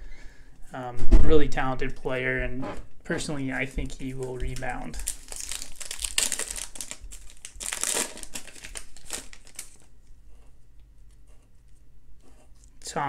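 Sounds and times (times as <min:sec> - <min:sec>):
wrapper crinkling and tearing: 0:04.1 - 0:09.9.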